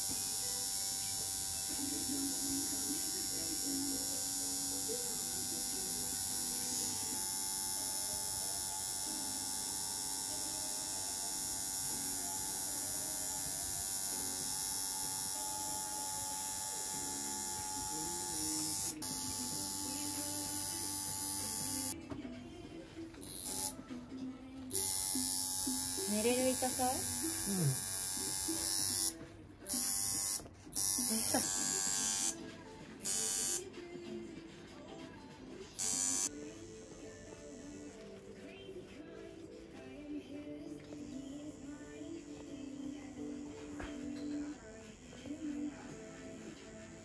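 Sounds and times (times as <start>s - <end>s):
tattoo machine buzzing: 0.0s - 22.0s, 23.2s - 23.8s, 24.7s - 32.4s, 33.0s - 33.7s, 35.8s - 38.0s.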